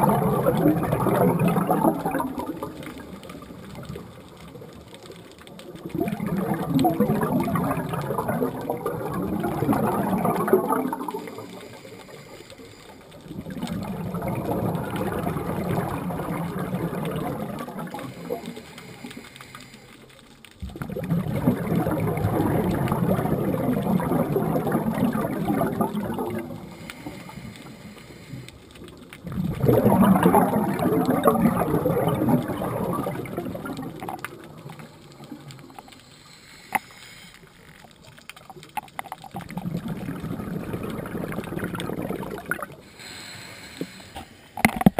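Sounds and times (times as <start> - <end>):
air bubbling underwater: 0.0 - 4.1, 5.8 - 11.8, 13.3 - 18.5, 20.6 - 26.8, 29.2 - 35.8, 38.5 - 42.9.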